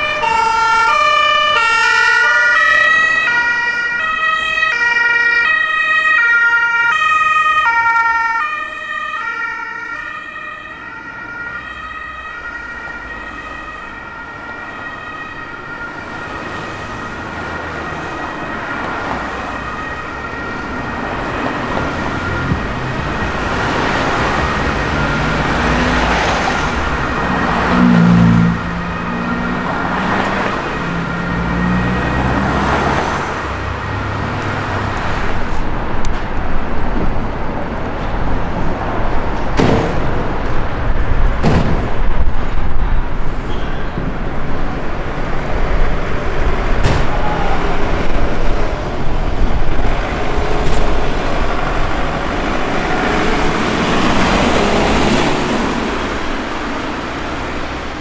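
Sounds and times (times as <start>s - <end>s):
two-tone ambulance siren: 0.0s - 36.8s, 43.0s - 58.0s
road traffic: 0.0s - 58.0s
loud low-pitched horn blast: 21.9s - 32.5s.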